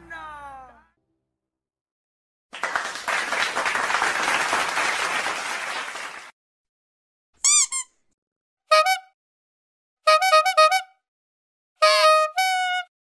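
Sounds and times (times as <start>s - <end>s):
crowd clapping: 2.5s - 6.4s.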